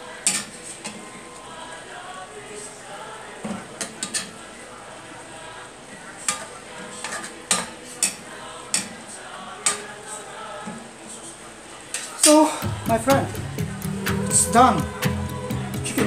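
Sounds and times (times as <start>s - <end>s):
metal spoon scraping a metal pan: 6.3s - 8.9s.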